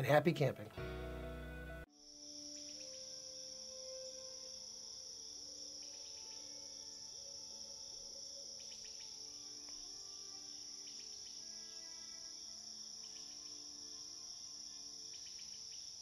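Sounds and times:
soft sustained music: 0:00.0 - 0:16.0
crickets chirping: 0:01.9 - 0:16.0.

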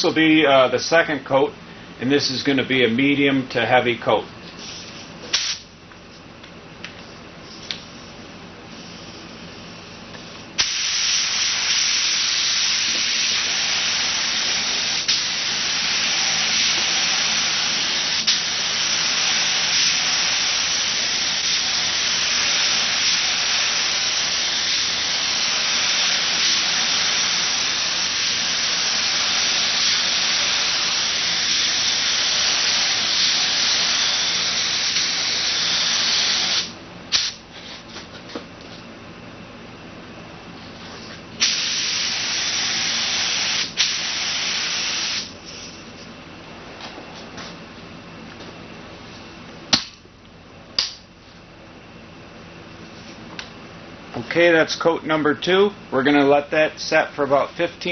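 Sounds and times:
spray gun hissing: 0:10.6 - 0:37.4, 0:41.4 - 0:45.3.

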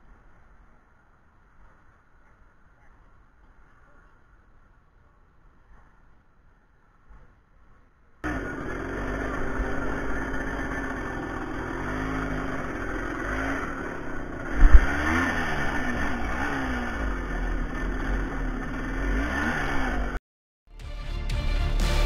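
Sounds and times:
off-road engine revving: 0:08.2 - 0:20.2.

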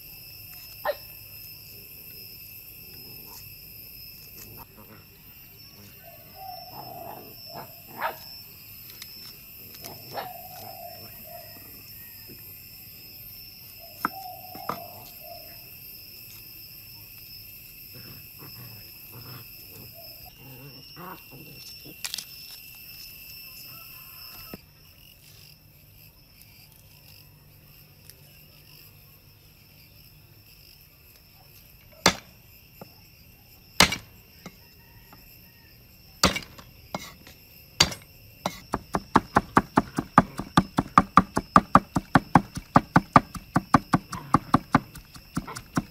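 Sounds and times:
insects trilling: 0:00.0 - 0:45.9
knife chopping on wooden board: 0:33.8 - 0:34.1, 0:36.2 - 0:37.2, 0:37.8 - 0:45.9.

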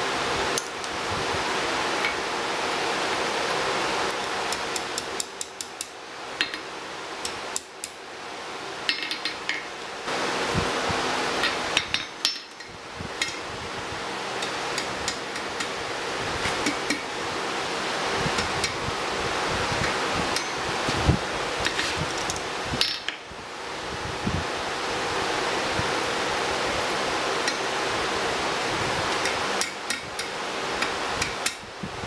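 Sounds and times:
steady rushing noise: 0:10.0 - 0:11.9
hammer tapping hot metal on anvil: 0:20.4 - 0:20.6, 0:29.2 - 0:31.6.

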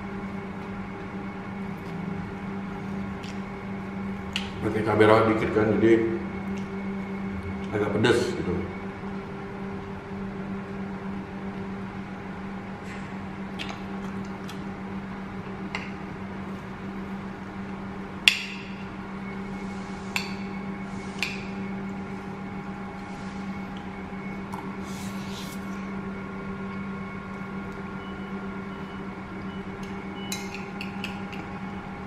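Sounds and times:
low electrical hum: 0:00.0 - 0:32.0.

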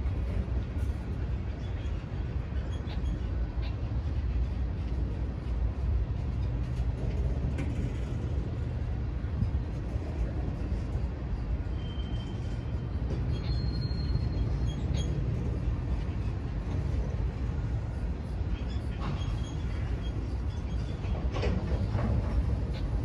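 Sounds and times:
train wheels rumbling on rails: 0:00.0 - 0:23.0
high wheel squeals: 0:11.6 - 0:15.7.

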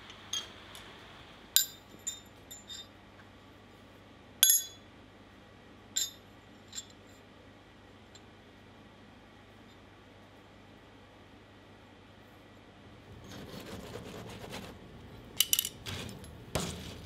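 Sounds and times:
steel clinking on anvil: 0:04.4 - 0:04.8.

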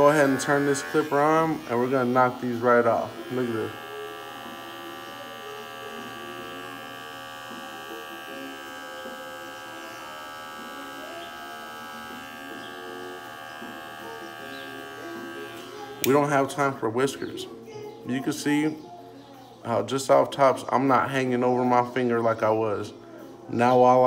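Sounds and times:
hair clipper humming: 0:00.0 - 0:17.0.

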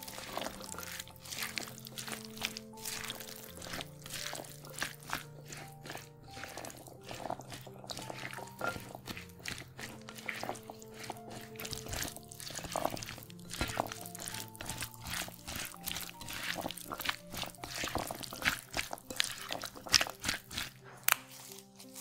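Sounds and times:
background music with held notes: 0:00.0 - 0:22.0
salad stirred in glass bowl: 0:00.0 - 0:22.0.

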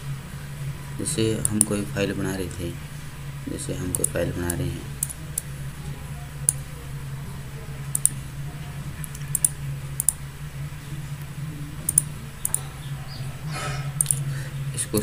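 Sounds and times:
steady low hum: 0:00.0 - 0:15.0
computer mouse clicking: 0:01.4 - 0:01.8, 0:03.9 - 0:05.5, 0:06.4 - 0:06.6, 0:07.9 - 0:08.2, 0:09.0 - 0:10.2, 0:11.9 - 0:12.6, 0:14.0 - 0:14.2.

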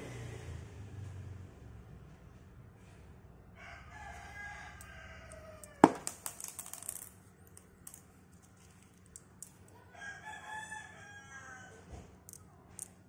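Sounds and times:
rooster crowing: 0:03.6 - 0:05.8, 0:09.9 - 0:12.0
stones clicking and knocking: 0:05.3 - 0:09.8, 0:12.2 - 0:13.0.

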